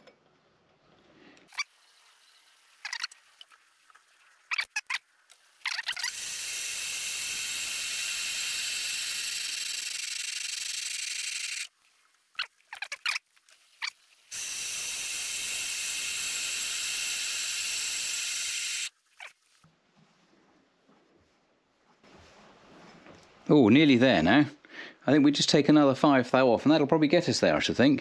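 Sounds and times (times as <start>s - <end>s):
short squeaks: 2.8s - 3.2s, 4.5s - 5.0s, 5.6s - 6.2s.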